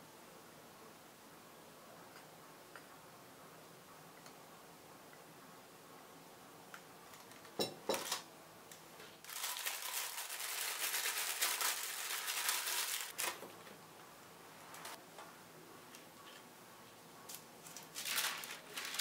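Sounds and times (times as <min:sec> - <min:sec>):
plastic film crinkling: 0:07.1 - 0:08.2, 0:09.2 - 0:13.7, 0:17.3 - 0:19.0.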